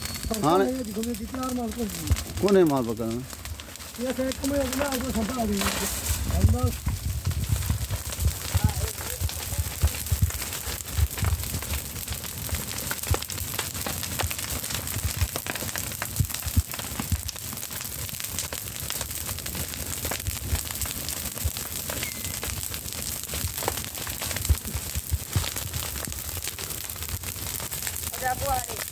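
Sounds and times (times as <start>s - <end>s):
fire crackling and popping: 0.0s - 28.9s
low uneven rumble: 0.2s - 11.8s.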